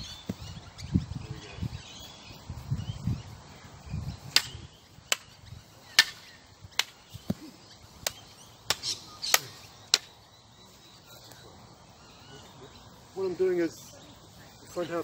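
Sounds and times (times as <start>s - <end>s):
stick striking umbrella: 4.3s - 5.3s, 5.9s - 6.2s, 6.8s - 7.0s.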